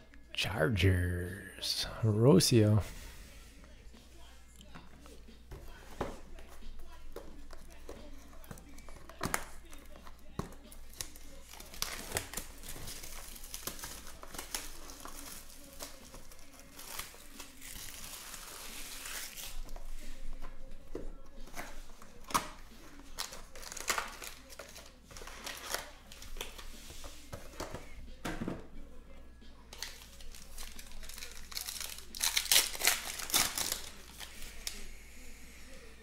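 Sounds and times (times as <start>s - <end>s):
cards shuffling: 4.7s - 28.0s, 29.7s - 34.8s
card pack wrapper crinkling: 6.8s - 19.8s, 22.3s - 26.6s, 29.7s - 34.8s.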